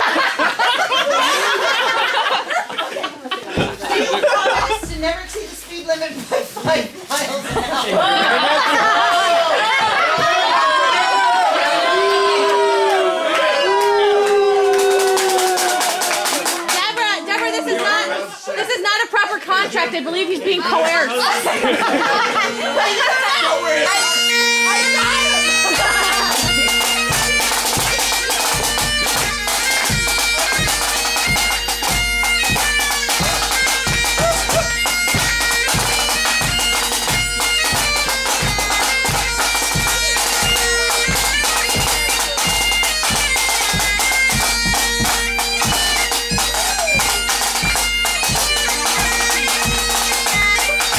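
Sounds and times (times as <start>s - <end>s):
drums beating: 0.0s - 50.9s
bagpipes playing a tune: 3.5s - 6.2s, 16.0s - 50.9s.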